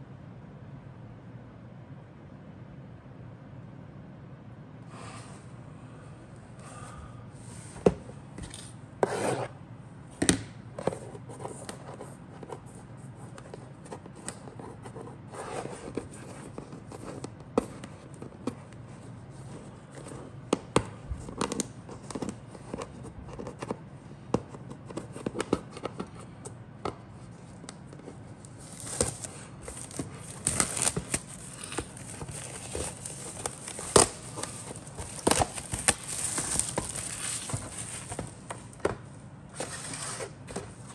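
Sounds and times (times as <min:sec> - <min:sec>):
cardboard rubbing and sliding: 0:09.0 - 0:09.6, 0:28.0 - 0:40.9
crisp rustling of packaging: 0:27.3 - 0:40.9.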